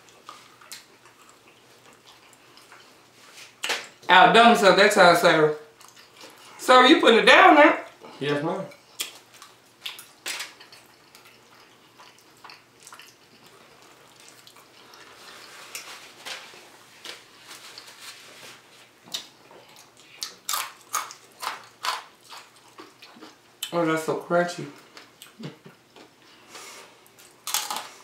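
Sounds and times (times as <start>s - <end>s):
wet chewing and lip smacks: 0.0s - 4.0s, 5.8s - 6.5s, 8.7s - 15.1s
crunchy bites of fried food: 19.2s - 23.4s, 27.2s - 28.0s.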